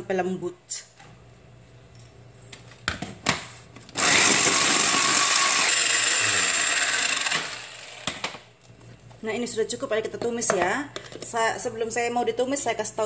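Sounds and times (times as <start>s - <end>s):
electric chopper motor whirring: 4.0s - 8.2s.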